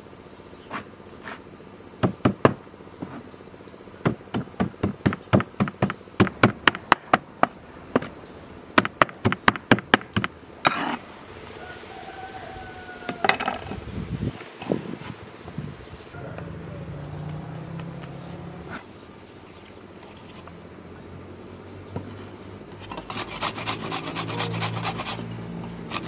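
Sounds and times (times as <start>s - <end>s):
cleaver chopping on wooden board: 4.0s - 8.1s.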